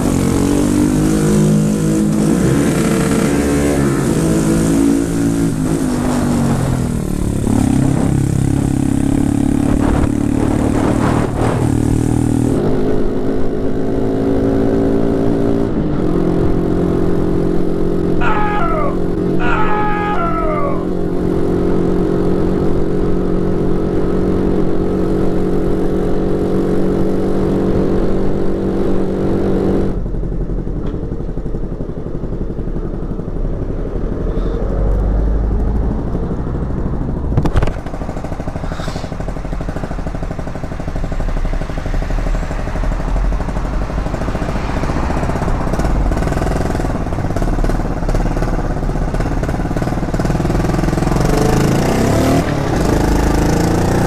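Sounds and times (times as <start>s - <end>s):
moped engine drone: 0.0s - 54.0s
low rumble of riding: 16.0s - 26.2s, 29.8s - 54.0s.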